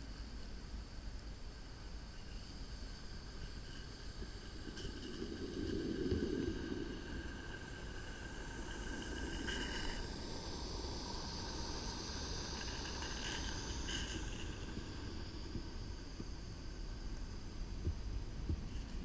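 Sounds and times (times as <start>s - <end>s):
steam locomotive passing: 3.0s - 17.1s
wagon wheels rumbling on track: 3.4s - 15.9s.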